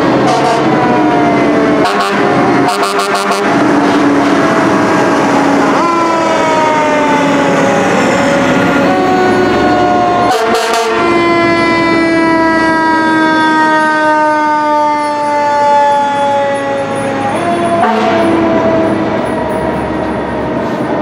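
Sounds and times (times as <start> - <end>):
fire truck air horns: 0.1 - 1.0, 1.8 - 7.3, 8.7 - 19.3.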